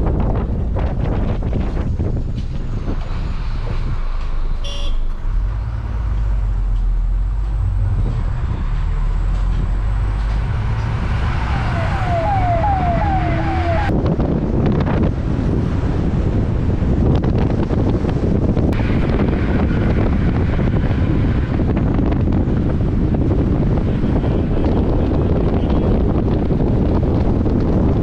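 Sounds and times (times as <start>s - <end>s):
bus engine running: 0.0s - 28.0s
road noise: 0.0s - 28.0s
horn sliding notes: 10.0s - 13.9s.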